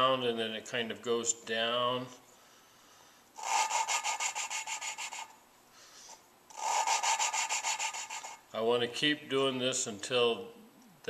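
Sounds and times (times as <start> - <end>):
valve grinding against seat: 3.4 - 5.4, 6.5 - 8.4.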